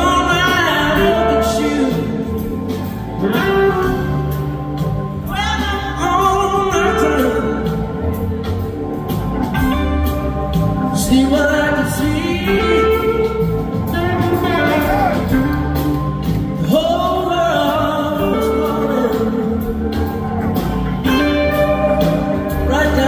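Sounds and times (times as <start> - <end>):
man singing lead: 0.0 - 4.5, 5.2 - 8.5, 10.9 - 15.7, 16.6 - 23.0
live soul-blues band: 0.0 - 23.0.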